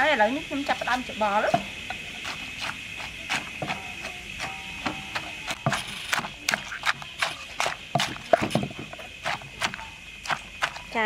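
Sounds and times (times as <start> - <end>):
spoon scraping mix: 0.6 - 11.0
wooden pestle pounding in mortar: 0.7 - 11.0.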